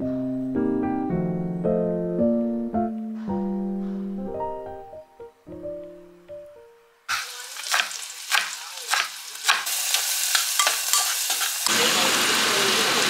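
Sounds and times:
food sizzling in pan: 7.1 - 13.0
metal spoon scraping saucepan: 10.3 - 11.7.

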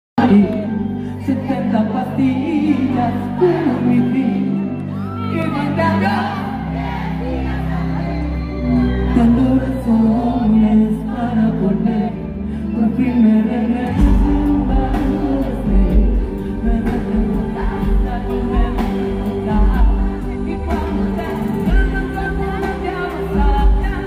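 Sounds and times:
live pop band: 0.2 - 24.0
woman singing into a microphone: 8.8 - 24.0
heavy bass: 13.8 - 24.0.

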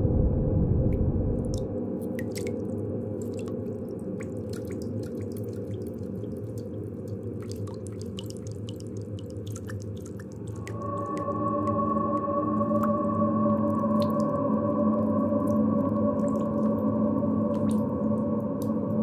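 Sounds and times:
steady low rumble: 0.0 - 4.4, 10.5 - 19.0
water drops falling: 1.4 - 19.0.

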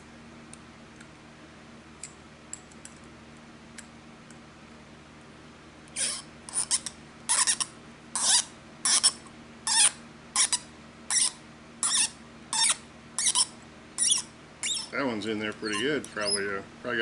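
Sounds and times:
threaded metal part squealing: 6.0 - 16.6.

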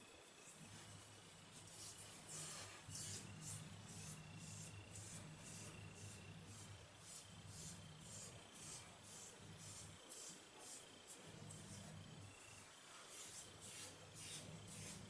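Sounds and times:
fingertips rubbing gritty paste on skin: 1.6 - 10.8, 13.1 - 15.0.

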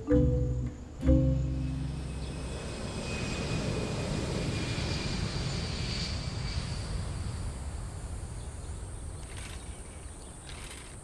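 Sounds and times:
jet airliner engine rumble: 1.6 - 11.0.

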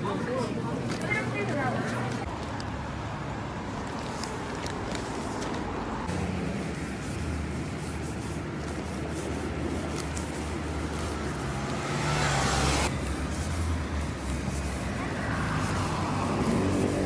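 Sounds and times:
passing cars rumble: 2.2 - 17.0
loud rush of passing car: 10.2 - 17.0.

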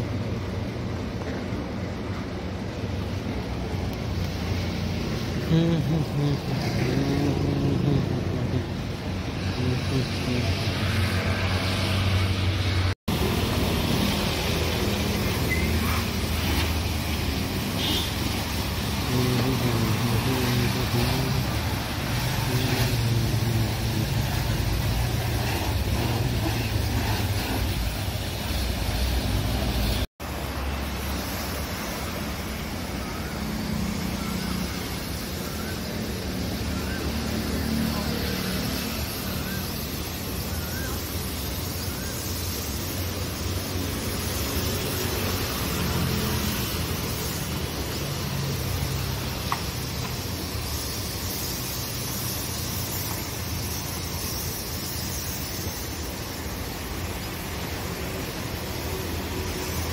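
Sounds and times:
hose water spraying on car: 0.0 - 59.9.

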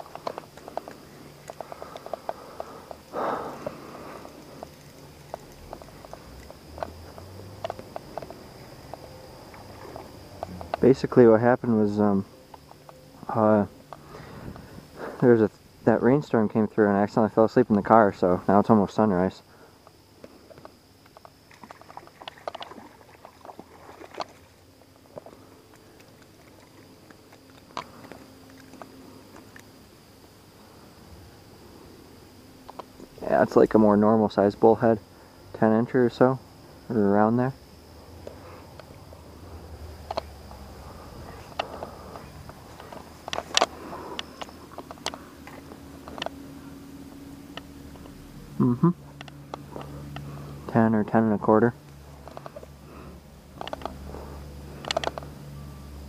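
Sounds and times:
fishing line clicks and rustles: 0.0 - 15.6, 19.8 - 30.4, 38.2 - 48.2, 49.0 - 50.8, 51.8 - 56.0
faint steady high tone: 0.0 - 20.7, 53.9 - 56.0
night insects trilling: 0.0 - 56.0.

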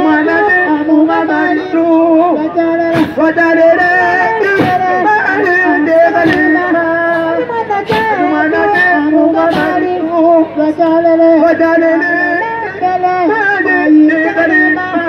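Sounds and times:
voices singing: 0.0 - 15.0
sharp struck beat: 2.9 - 3.4, 4.4 - 5.2, 6.1 - 9.9.

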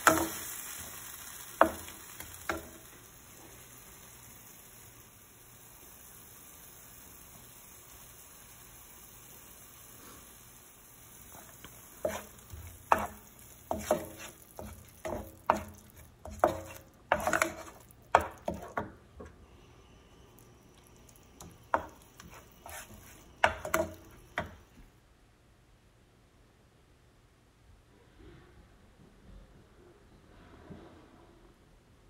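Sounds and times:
spatula scraping a frying pan: 0.0 - 3.7, 9.5 - 19.0, 21.4 - 24.5.

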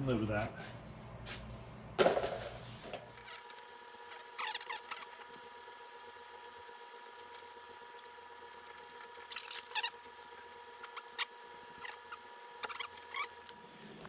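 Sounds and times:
short scratchy squeaks: 3.1 - 5.3, 9.0 - 10.2, 10.8 - 13.6.

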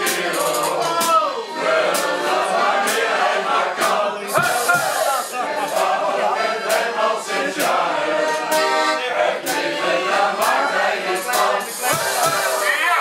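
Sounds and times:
accordion: 0.0 - 13.0
group singing: 0.0 - 13.0
sharp tapping on the beat: 3.8 - 5.1, 6.6 - 7.8, 11.2 - 12.7.

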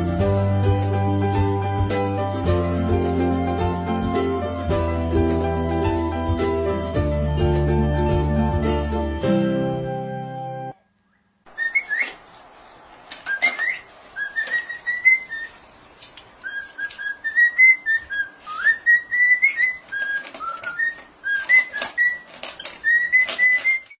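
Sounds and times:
cockatiel whistling: 11.1 - 12.2, 13.3 - 15.6, 16.4 - 24.0
dog crunching dry kibble: 19.8 - 23.9.

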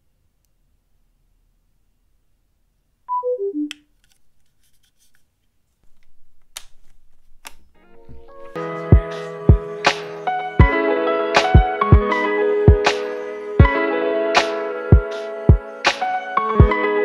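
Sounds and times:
background music: 7.8 - 17.0.

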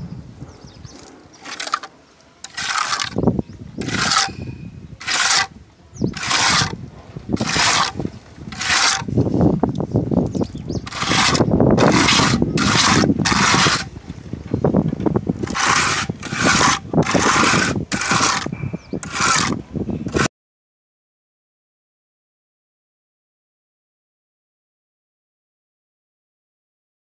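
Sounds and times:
trowel scraping across wall: 0.9 - 9.8, 10.4 - 14.0, 15.3 - 20.3.

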